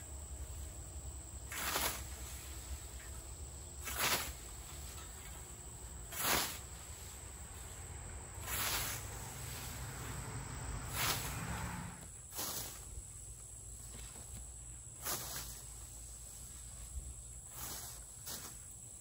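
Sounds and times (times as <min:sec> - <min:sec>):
high insect buzz: 0:00.0 - 0:19.0
scythe swishing through grass: 0:01.4 - 0:03.2, 0:03.8 - 0:13.0, 0:15.0 - 0:18.8.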